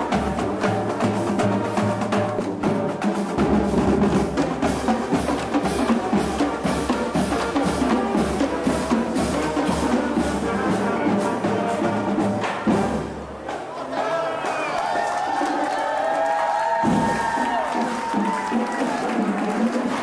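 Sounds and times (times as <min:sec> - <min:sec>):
snare drums: 0:00.0 - 0:13.8, 0:15.3 - 0:20.0
tenor drums: 0:00.0 - 0:14.6, 0:15.2 - 0:20.0
bass drums: 0:16.8 - 0:18.7.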